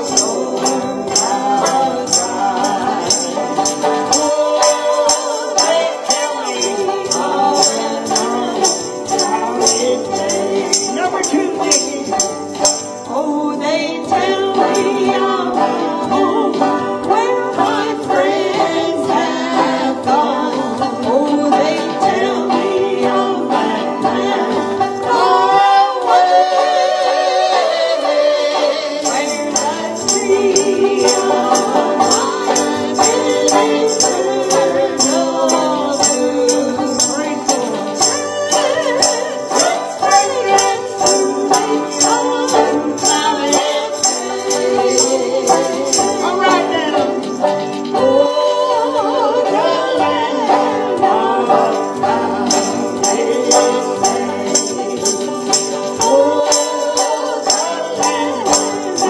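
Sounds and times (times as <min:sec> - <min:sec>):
tambourine jingling: 0:00.0 - 0:13.2, 0:29.0 - 0:48.8, 0:50.8 - 0:59.0
banjo playing: 0:00.0 - 0:59.0
person singing: 0:00.0 - 0:59.0.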